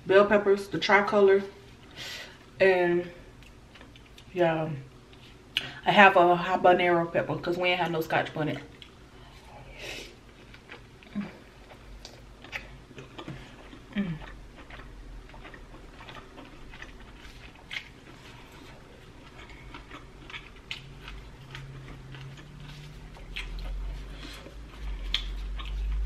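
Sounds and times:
chewing and mouth smacks: 3.4s - 4.3s, 10.3s - 26.0s.

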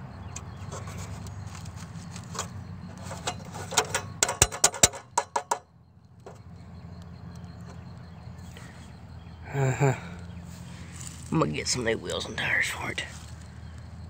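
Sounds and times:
fingers tapping on wheel rim: 0.3s - 5.7s.

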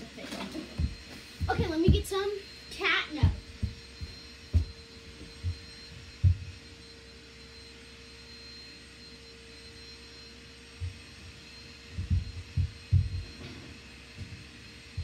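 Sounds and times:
steady machine hum: 0.0s - 15.0s
dull low thumps: 3.2s - 6.6s, 11.9s - 13.4s.

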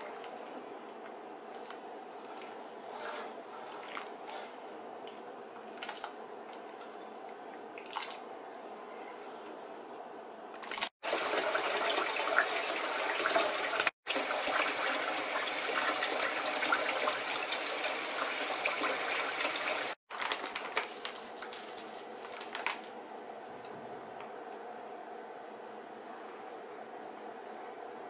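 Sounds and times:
tap water gushing into a pot: 10.7s - 20.0s
plastic bag crackling: 20.1s - 22.9s.

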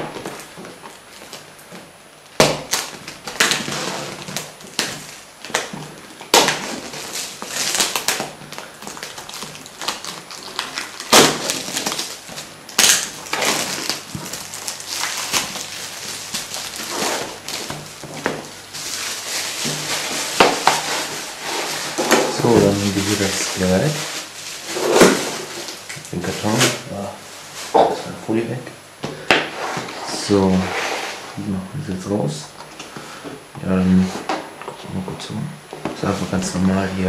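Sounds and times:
plastic shrink-wrap tearing and crinkling: 2.3s - 28.6s.

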